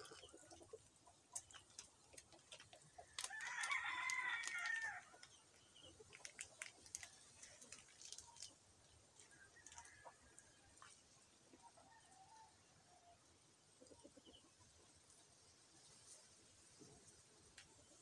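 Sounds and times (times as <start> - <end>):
rooster crowing: 3.3 - 5.1.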